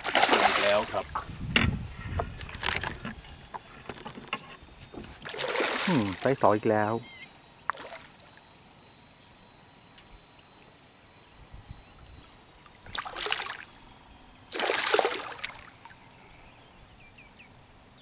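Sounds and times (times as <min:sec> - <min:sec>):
fish splashing in water: 0:00.0 - 0:01.1, 0:05.2 - 0:06.4, 0:12.8 - 0:13.7, 0:14.5 - 0:16.0.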